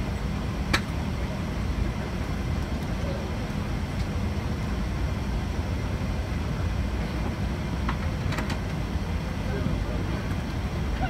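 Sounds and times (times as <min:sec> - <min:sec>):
aircraft cabin rumble: 0:00.0 - 0:11.0.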